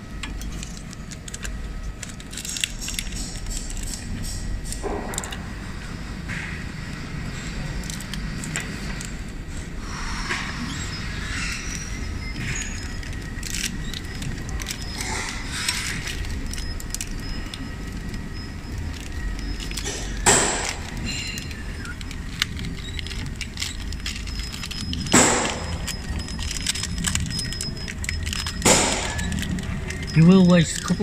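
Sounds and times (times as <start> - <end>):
steady low hum: 0.0 - 31.0
plastic film rustling and crinkling: 11.5 - 31.0.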